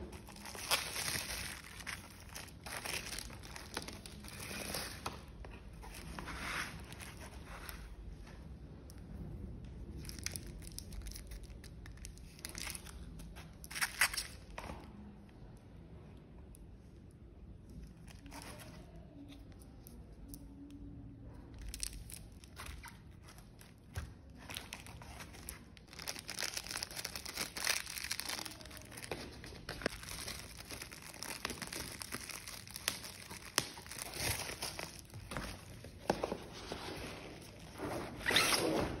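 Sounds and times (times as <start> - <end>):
bubble wrap crinkling: 0.0 - 8.0, 9.9 - 14.5, 21.4 - 39.0.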